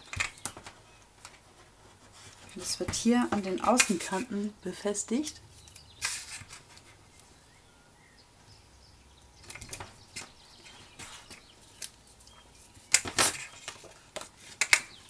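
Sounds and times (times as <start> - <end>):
adhesive tape and card rustling: 9.5 - 15.0.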